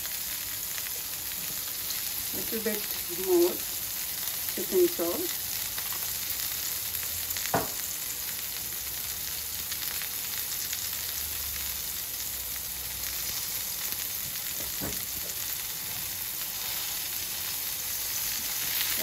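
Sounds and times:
hot oil sizzling and crackling: 0.0 - 19.0
soft knock: 7.6 - 7.8.

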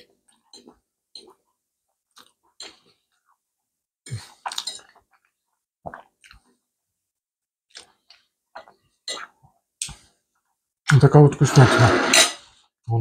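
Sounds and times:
chewing: 2.1 - 3.4, 4.1 - 6.6, 7.7 - 10.0
fork scraping on plate: 11.4 - 12.5.

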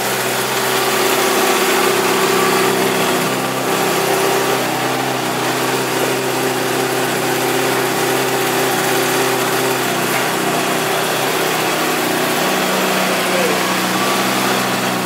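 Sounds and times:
motorcycle engine idling: 0.0 - 15.0.

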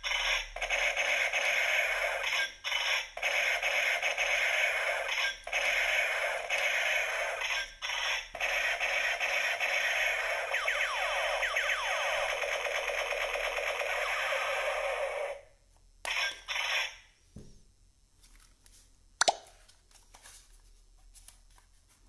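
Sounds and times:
toy gun electronic noise: 0.0 - 15.4, 16.0 - 17.1
falling laser-like sweeps: 8.3 - 15.4.

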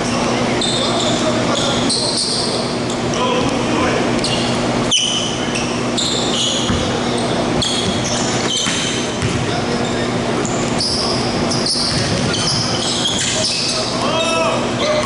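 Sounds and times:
sneakers squeaking: 0.0 - 3.6, 4.2 - 15.0
echoing gym voices: 0.0 - 15.0
basketball bouncing: 6.6 - 7.0, 7.6 - 9.6, 11.7 - 13.4.

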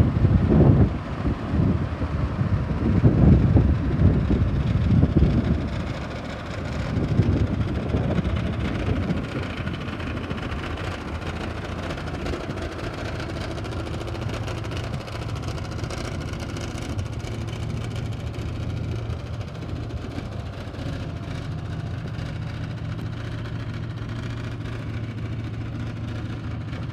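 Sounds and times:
wind gusting on microphone: 0.0 - 12.7
truck engine idling: 0.0 - 26.9.

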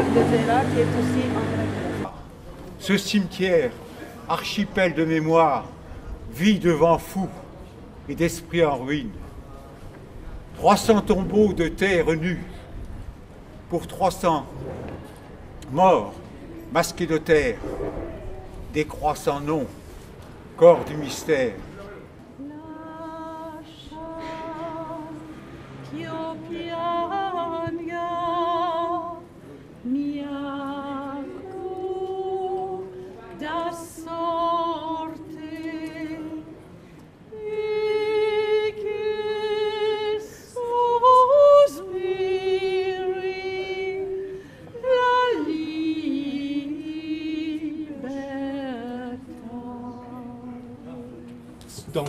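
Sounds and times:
woman singing unaccompanied: 22.4 - 36.7, 37.3 - 51.6.

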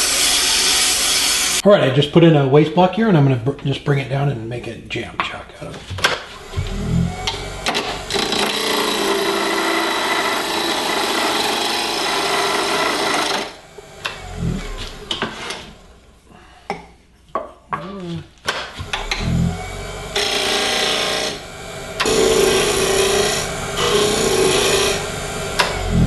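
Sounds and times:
lathe tool scraping wood: 0.0 - 1.6, 6.2 - 16.1, 18.8 - 26.0
low thump: 6.5 - 8.1.

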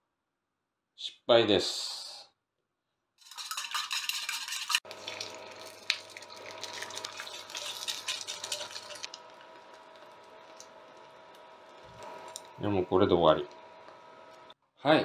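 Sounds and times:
chopsticks stirring in pan: 3.2 - 14.5
egg sizzling in hot oil: 3.2 - 14.6.

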